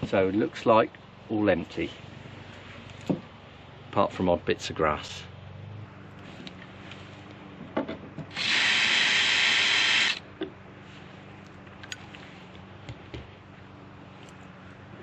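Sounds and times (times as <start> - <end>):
cordless drill running: 8.3 - 10.2.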